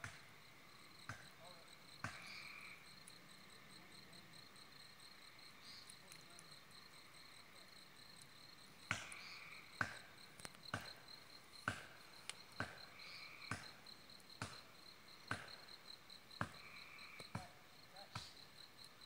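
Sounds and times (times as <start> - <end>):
crickets chirping: 0.0 - 19.0
hatchet chopping into tree trunk: 2.0 - 2.2, 8.9 - 9.2, 9.8 - 10.1, 10.7 - 11.0, 11.6 - 11.9, 13.5 - 13.8, 15.3 - 15.6.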